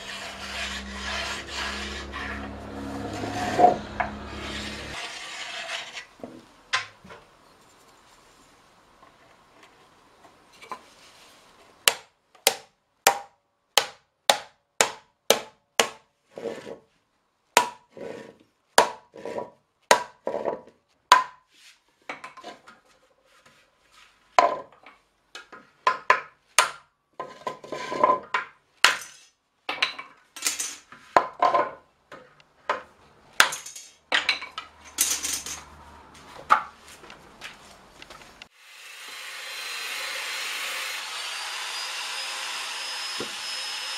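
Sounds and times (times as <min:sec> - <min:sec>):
angle grinder running: 0:00.0 - 0:05.4, 0:38.6 - 0:43.9.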